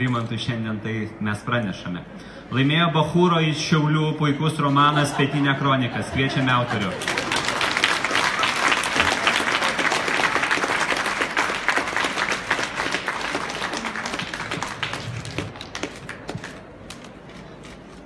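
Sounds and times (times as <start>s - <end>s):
audience applauding: 6.5s - 17.1s.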